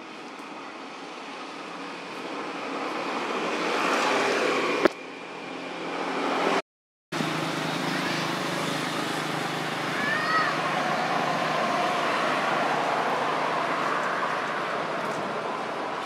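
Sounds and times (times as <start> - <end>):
passing motor traffic: 0.8 - 6.6, 7.2 - 16.0.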